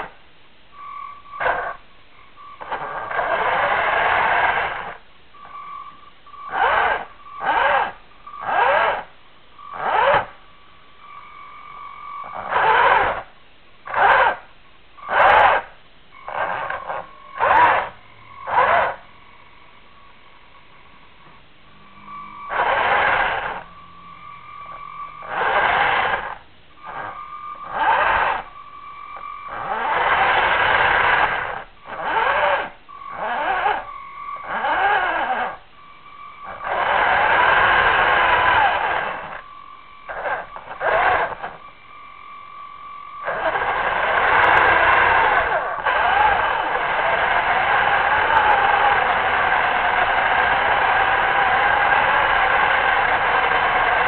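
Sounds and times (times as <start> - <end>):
faint steady whine: 0.0 - 54.0
electric motor whining in bursts: 1.4 - 1.9, 2.6 - 10.5, 11.7 - 19.1, 21.7 - 54.0.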